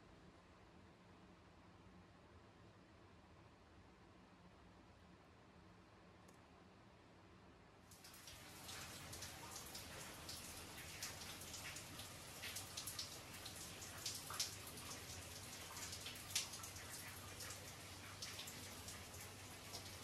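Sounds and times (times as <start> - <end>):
raindrops ticking on corrugated roof: 7.9 - 20.0
steady rain hiss: 7.9 - 20.0.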